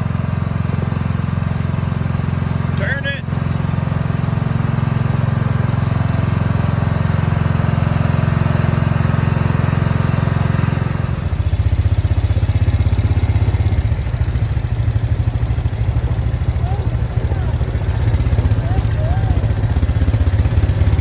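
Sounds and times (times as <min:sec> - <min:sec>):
riding lawn mower engine: 0:00.0 - 0:21.0.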